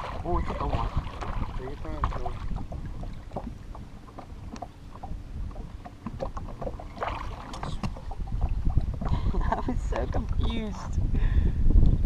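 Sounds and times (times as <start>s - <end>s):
water lapping against boat hull: 0.0s - 12.0s
wind rumble on microphone: 0.0s - 12.0s
light ticks and taps: 4.5s - 4.7s.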